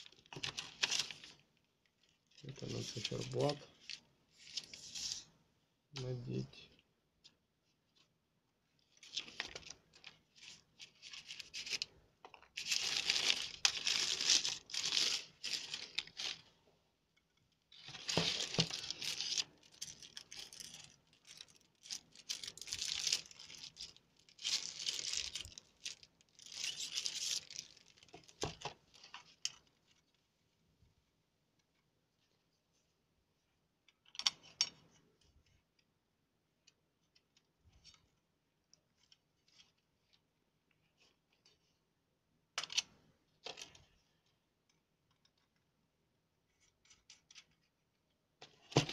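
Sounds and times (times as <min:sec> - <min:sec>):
plastic film crinkling and tearing: 0:00.0 - 0:04.8, 0:12.5 - 0:16.5, 0:17.7 - 0:30.1.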